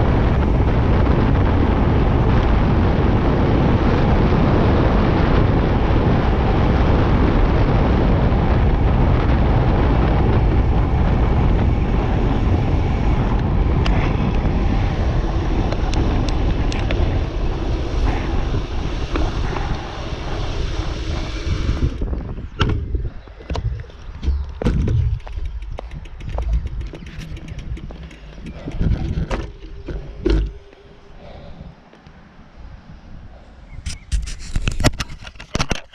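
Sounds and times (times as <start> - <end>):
wind rush over microphone: 0.0 - 35.9
bike clicks and knocks: 22.5 - 30.8, 33.9 - 35.9.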